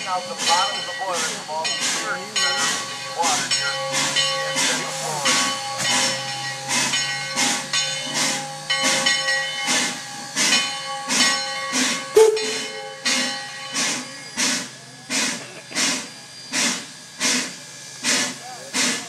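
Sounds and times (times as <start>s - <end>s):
steam locomotive hissing steam: 0.0s - 19.0s
steady whistling tone: 12.2s - 14.9s.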